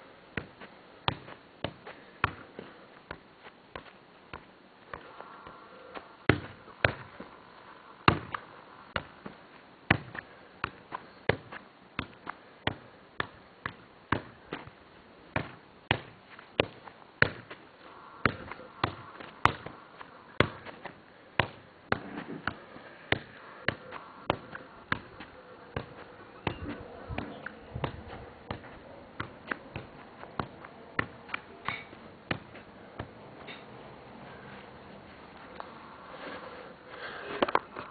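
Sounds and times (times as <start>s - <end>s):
football kicks and headers: 0.4s - 2.5s, 6.3s - 7.3s, 8.1s - 8.4s, 9.0s - 14.8s, 15.4s - 17.6s, 18.2s - 33.2s.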